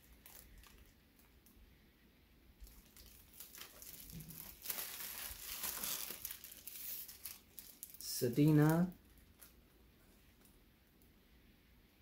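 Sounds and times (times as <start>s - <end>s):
plastic wrapping crinkling: 0.0s - 1.6s, 2.6s - 9.7s.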